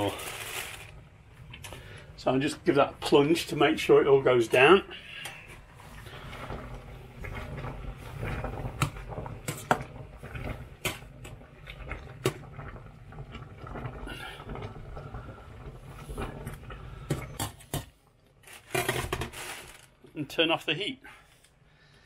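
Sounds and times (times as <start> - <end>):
boiling water bubbling: 0.0 - 18.4.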